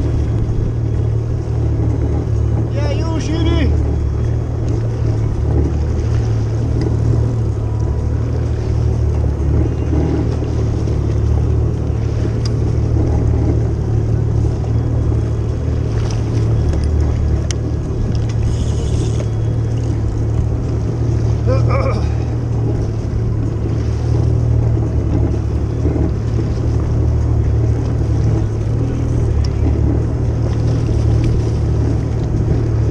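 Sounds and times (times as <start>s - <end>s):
jet ski engine idling: 0.0s - 32.9s
water noise: 0.0s - 32.9s.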